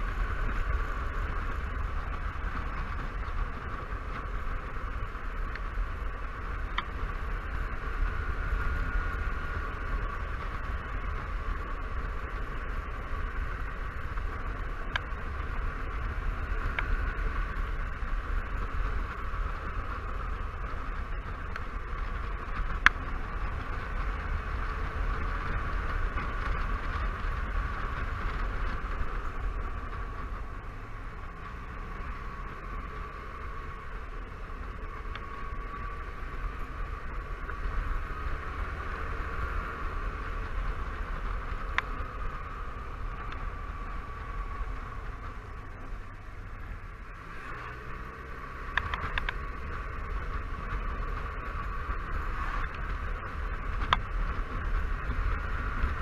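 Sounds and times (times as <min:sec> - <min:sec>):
scooter engine rumble: 0:00.0 - 0:56.0
wind and road noise: 0:00.0 - 0:56.0.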